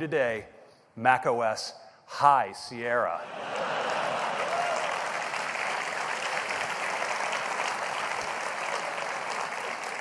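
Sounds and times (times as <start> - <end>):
large audience applauding: 3.4 - 10.0.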